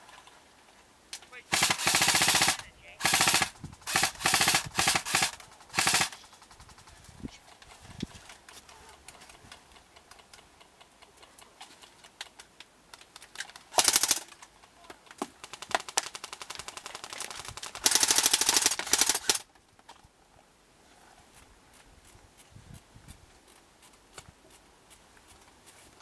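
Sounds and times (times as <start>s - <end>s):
airsoft gun firing: 1.5s - 6.4s, 13.7s - 14.3s, 17.8s - 19.4s.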